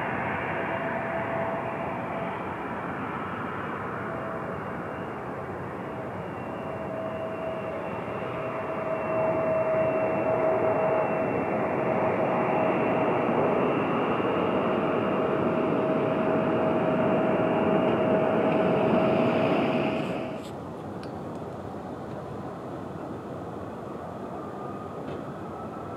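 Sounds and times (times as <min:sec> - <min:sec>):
jet engines whining: 0:00.0 - 0:20.5.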